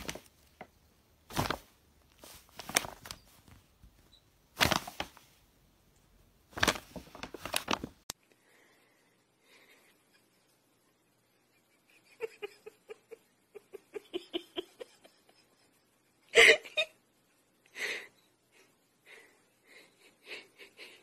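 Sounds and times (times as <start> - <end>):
person giggling: 11.4 - 17.0, 19.1 - 21.0.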